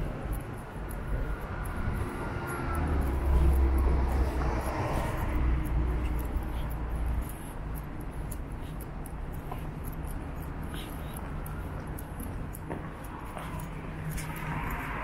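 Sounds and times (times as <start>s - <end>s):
street hum: 0.0s - 15.0s
vehicle engine rumble passing: 1.3s - 7.8s.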